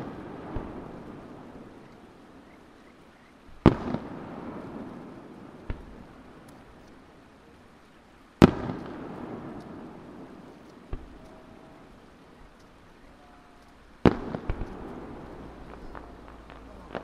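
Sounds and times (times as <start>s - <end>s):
firework shells bursting: 3.5s - 7.2s, 8.4s - 17.0s
rumbling echo: 13.1s - 17.0s.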